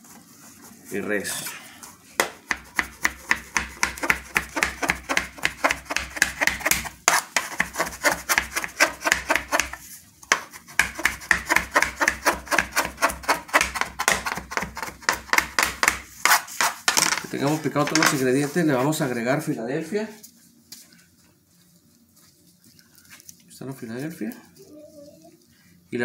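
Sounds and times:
knife chopping on plastic board: 2.2s - 17.1s.

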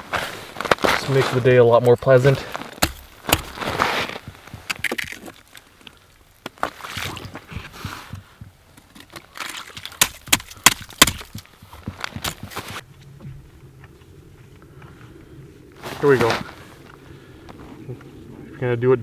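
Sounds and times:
crunchy scrapes of ice: 0.0s - 7.5s, 15.8s - 16.9s.

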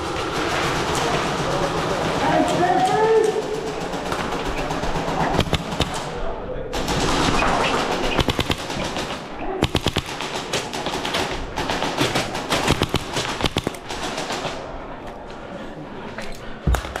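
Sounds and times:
airsoft guns firing bursts: 0.0s - 14.8s.

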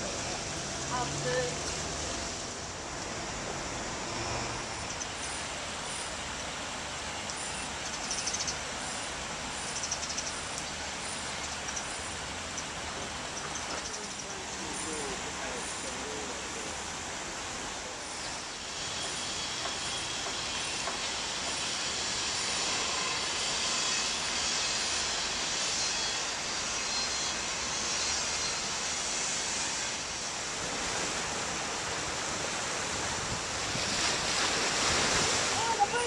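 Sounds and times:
rain falling: 0.0s - 3.8s.

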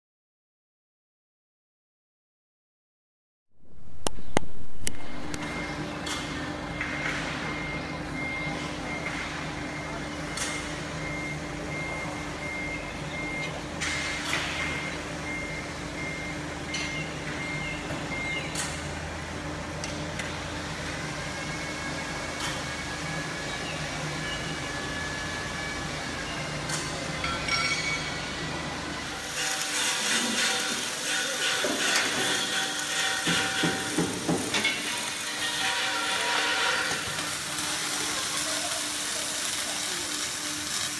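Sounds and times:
forklift reversing alarm beeping: 5.1s - 38.0s
metal clanking and knocking: 31.4s - 36.9s.

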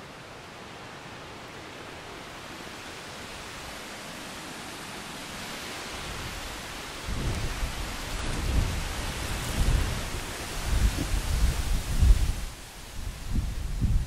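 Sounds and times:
low rumbling wind gusts: 1.6s - 14.0s
wind buffeting microphone: 6.0s - 14.0s.

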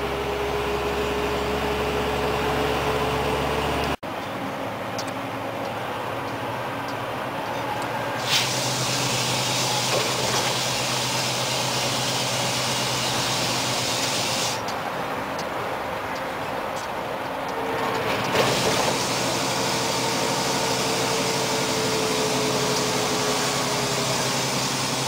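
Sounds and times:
road noise: 0.0s - 25.0s
truck engine drone: 0.0s - 25.0s
loud high hiss: 8.2s - 14.7s, 18.4s - 25.0s.

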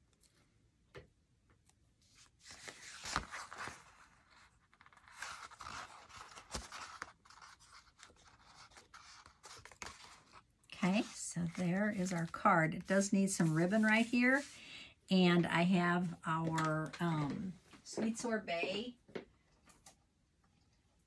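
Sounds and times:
paper rustling and scraping: 2.1s - 14.6s.

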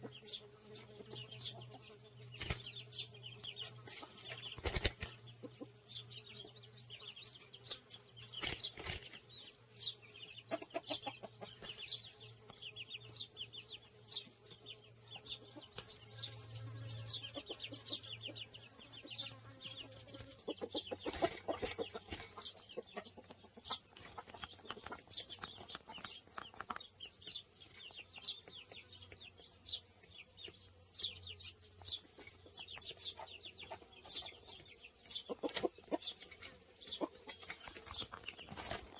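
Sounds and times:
sparrow chirping: 0.0s - 38.9s
wings beating against mesh: 2.4s - 2.7s, 3.8s - 5.2s, 8.4s - 9.2s.

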